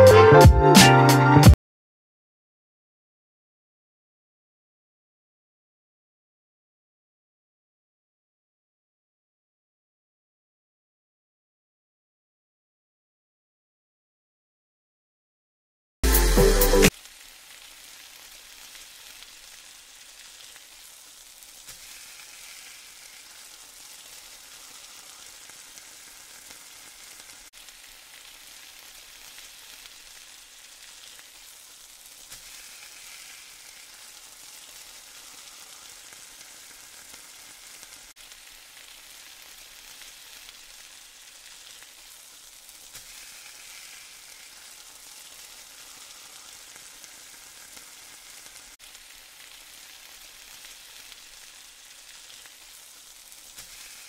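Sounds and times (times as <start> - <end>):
pancake sizzling in a pan: 16.0 - 54.0.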